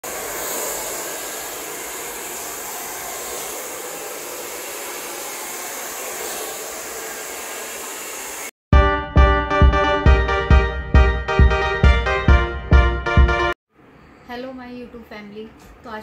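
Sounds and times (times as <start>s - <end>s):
hair dryer blowing: 0.0s - 8.6s.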